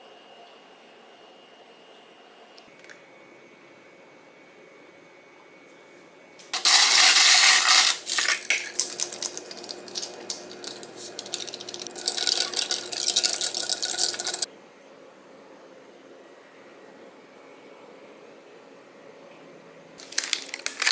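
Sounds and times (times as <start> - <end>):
ice cubes clinking in a glass: 6.6 - 14.5, 20.0 - 20.9.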